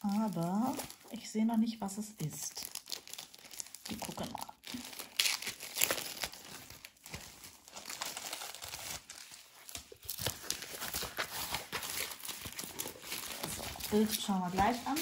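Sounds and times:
plastic wrap crinkling: 0:00.0 - 0:15.0
paper sheet rustling: 0:05.9 - 0:15.0.

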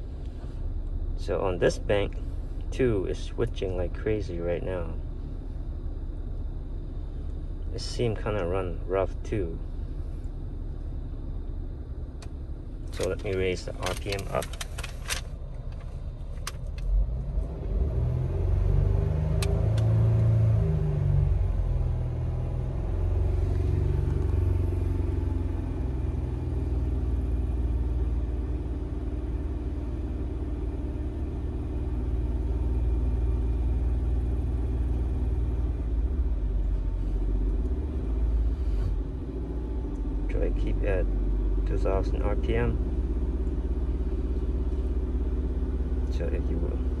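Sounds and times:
car engine revving to fast idle: 0:09.5 - 0:47.0.

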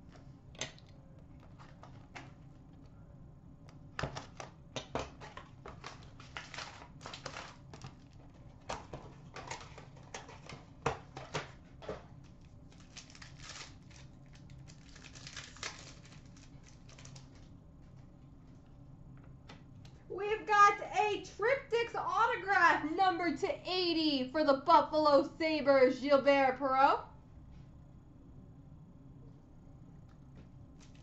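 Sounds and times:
plastic wrapping crinkling and tearing: 0:05.3 - 0:10.6, 0:12.2 - 0:17.5.

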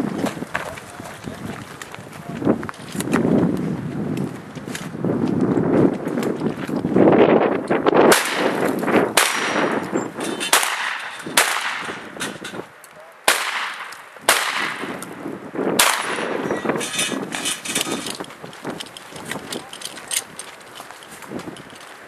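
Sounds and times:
shotgun shots: 0:08.1 - 0:09.8, 0:10.4 - 0:12.2, 0:13.2 - 0:15.0, 0:15.8 - 0:16.4.

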